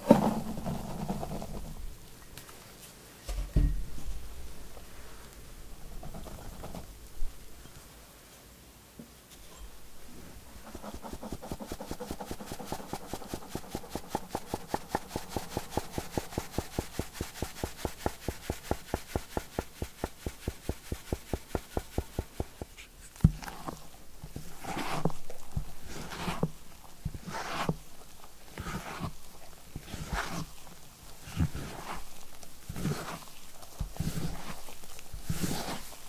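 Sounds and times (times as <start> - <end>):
powder hissing on mesh: 10.3 - 36.0
spatula folding thick batter: 10.5 - 36.0
sieve tapped rapidly: 10.6 - 22.8.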